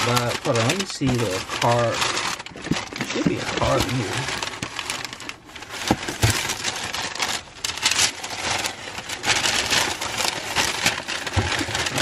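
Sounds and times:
tissue paper rustling: 0:00.0 - 0:12.0.

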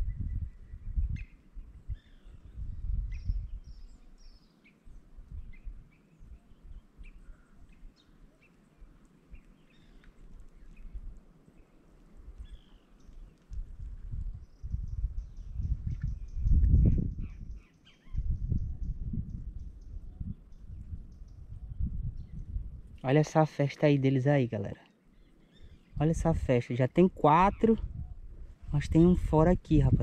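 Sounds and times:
birds chirping: 0:03.1 - 0:13.4, 0:14.4 - 0:28.0.

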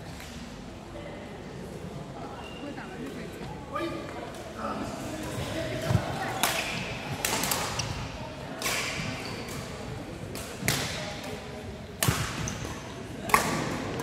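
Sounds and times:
racket hitting shuttlecock: 0:10.3 - 0:11.3, 0:12.0 - 0:14.0.

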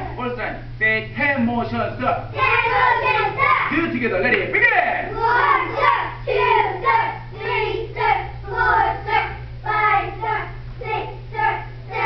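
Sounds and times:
low hum: 0:00.0 - 0:12.0
children chanting: 0:02.4 - 0:03.8, 0:05.1 - 0:12.0.

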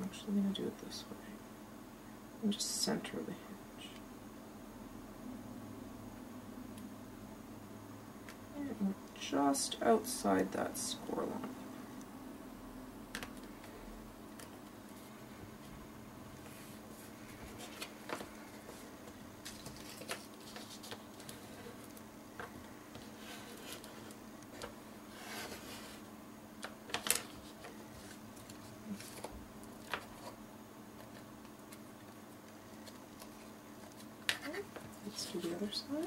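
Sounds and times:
faint steady hum: 0:00.0 - 0:36.0
paper rustling: 0:16.4 - 0:26.0, 0:26.6 - 0:30.4.

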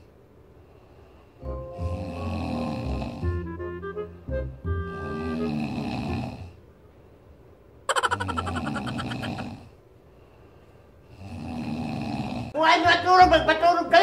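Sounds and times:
quiet breaths: 0:00.0 - 0:03.4, 0:09.3 - 0:12.6
person snoring: 0:01.8 - 0:03.4, 0:05.2 - 0:06.6, 0:11.2 - 0:12.5.

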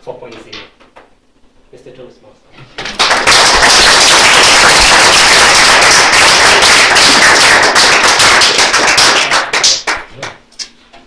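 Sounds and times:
audience applauding: 0:02.8 - 0:10.4
close hands clapping: 0:02.8 - 0:10.4.

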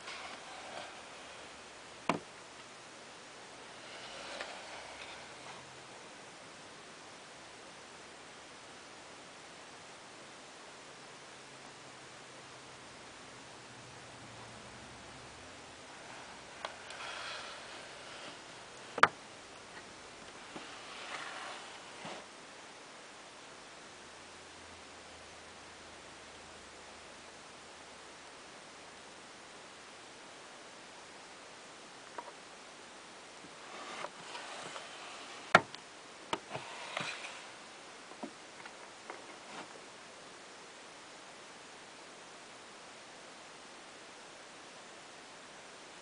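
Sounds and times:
drawer sliding open: 0:00.0 - 0:02.3, 0:03.7 - 0:05.7, 0:16.1 - 0:19.1, 0:20.4 - 0:22.3, 0:33.6 - 0:35.7, 0:36.4 - 0:37.6.

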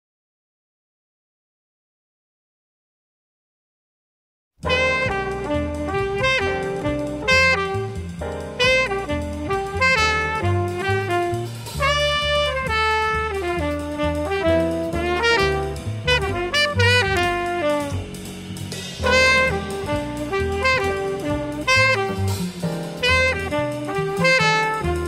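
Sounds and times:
saxophone melody: 0:04.6 - 0:18.4, 0:19.0 - 0:25.0
bass: 0:04.6 - 0:25.0
drums: 0:04.6 - 0:25.0.

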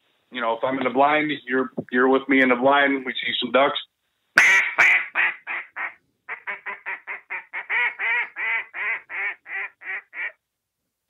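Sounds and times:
duck call quacking: 0:04.4 - 0:10.4.

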